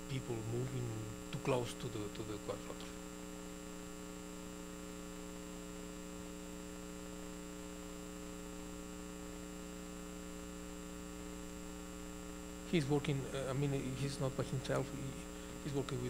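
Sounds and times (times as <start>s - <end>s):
faint hiss: 0.0s - 3.2s, 8.5s - 16.0s
electrical mains hum: 0.0s - 16.0s.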